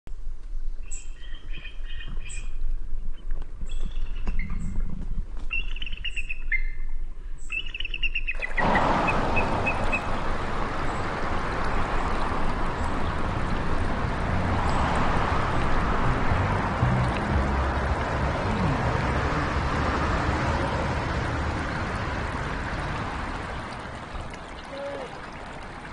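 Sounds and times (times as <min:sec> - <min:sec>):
bird piping calls: 0:00.9 - 0:02.5, 0:05.5 - 0:06.8, 0:07.4 - 0:10.2
river running over rocks: 0:08.6 - 0:25.9.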